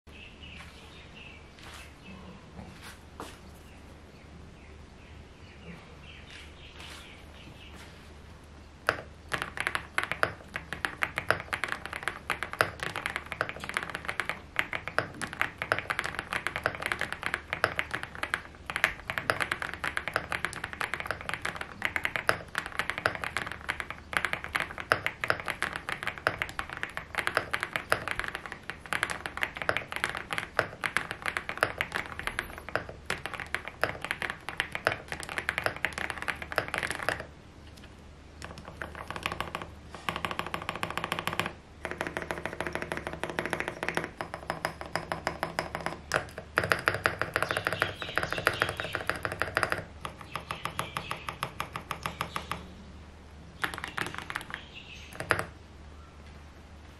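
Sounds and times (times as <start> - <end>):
fast mechanical keyboard typing: 8.8 - 37.3, 38.4 - 52.7, 53.6 - 55.6.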